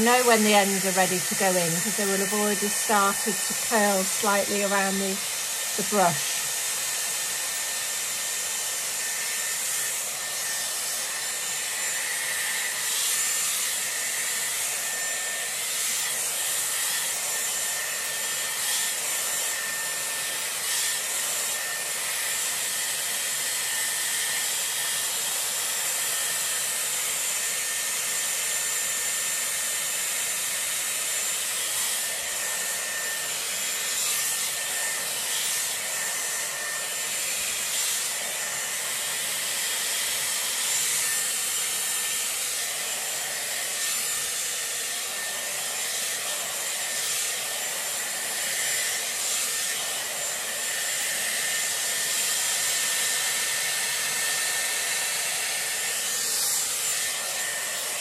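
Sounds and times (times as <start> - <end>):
bristles rasping through hair: 0.0 - 22.1
hair styler air rush: 0.0 - 58.0.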